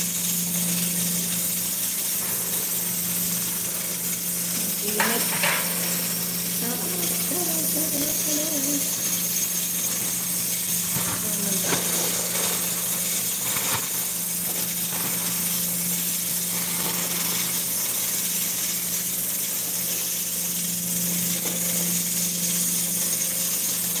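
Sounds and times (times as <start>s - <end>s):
steady hiss and low hum: 0.0s - 24.0s.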